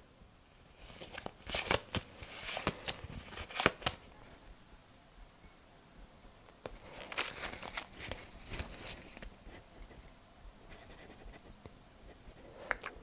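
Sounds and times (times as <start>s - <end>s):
trading cards rustling: 0.6s - 4.1s, 6.7s - 9.4s.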